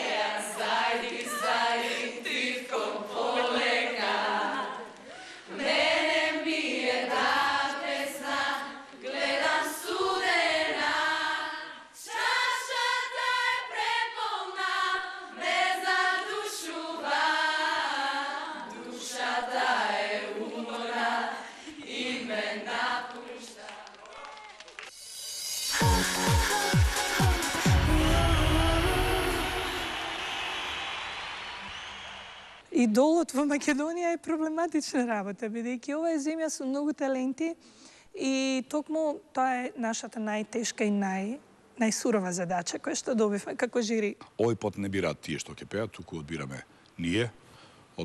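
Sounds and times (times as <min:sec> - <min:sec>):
group singing in chorus: 0:00.0 - 0:23.9, 0:25.7 - 0:32.2.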